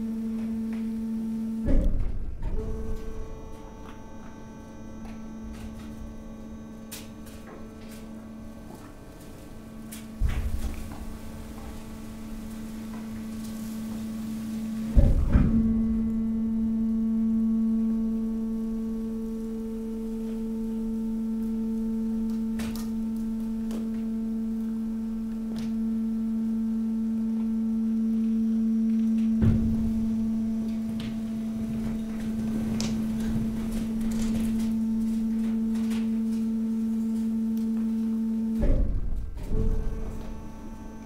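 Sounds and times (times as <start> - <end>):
hydraulic compactor humming: 0.0 - 41.0
heavy clunk: 10.0 - 16.1, 29.3 - 36.3, 38.5 - 41.0.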